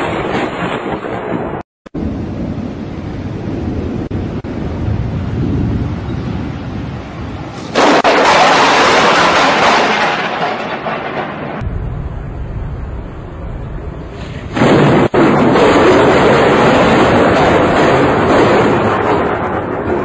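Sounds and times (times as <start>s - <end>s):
thunder crack and rumble: 0.0s - 20.0s
wind: 0.0s - 20.0s.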